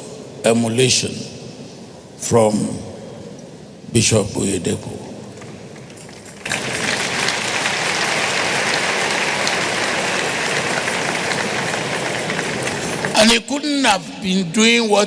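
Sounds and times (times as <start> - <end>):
audience clapping: 5.4 - 13.4.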